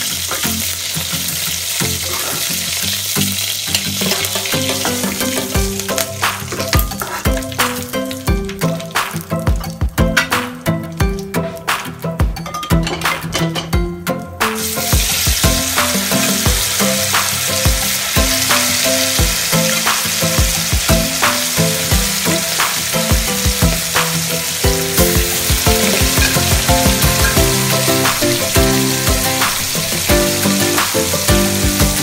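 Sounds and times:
spices sizzling in hot oil: 0:00.0 - 0:10.4, 0:14.5 - 0:32.0
metal spatula stirring in wok: 0:03.7 - 0:07.6, 0:25.0 - 0:30.0.

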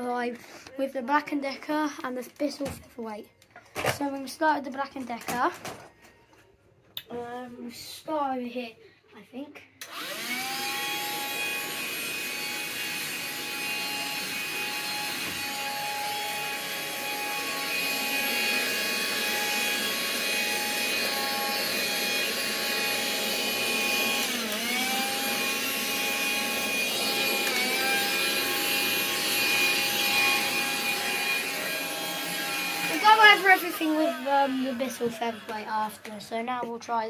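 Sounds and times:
handheld vacuum whining: 0:09.8 - 0:36.7.

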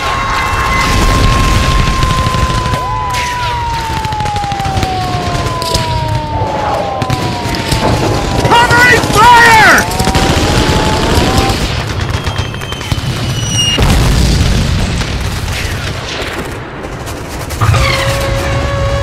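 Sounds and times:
rapid crackling bangs: 0:00.0 - 0:19.0
trumpet long held note: 0:17.9 - 0:19.0.

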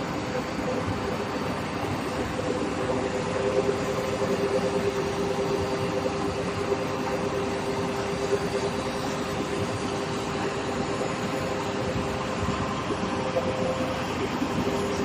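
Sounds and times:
two-tone machine hum: 0:00.0 - 0:15.0.

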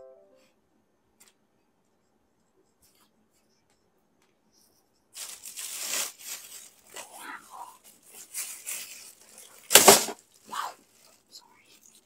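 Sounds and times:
loud plastic crackle: 0:05.2 - 0:07.2, 0:08.0 - 0:11.2
plastic bag crinkling: 0:05.2 - 0:07.2, 0:07.8 - 0:11.3.

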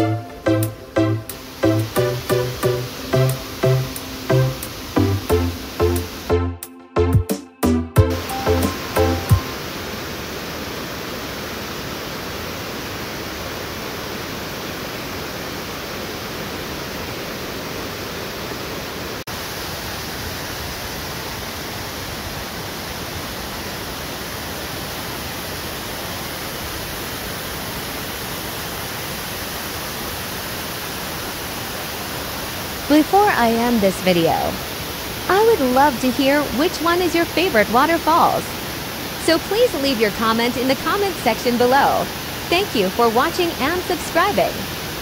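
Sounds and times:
waterfall rushing: 0:00.0 - 0:06.4, 0:08.0 - 0:45.0.

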